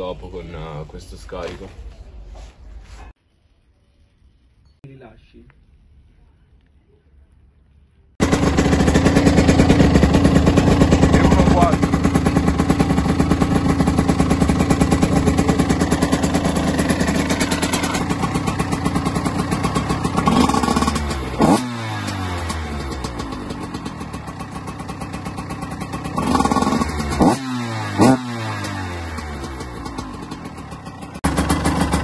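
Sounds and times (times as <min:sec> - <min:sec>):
two-stroke motorbike engine idling: 0:08.2 - 0:32.0.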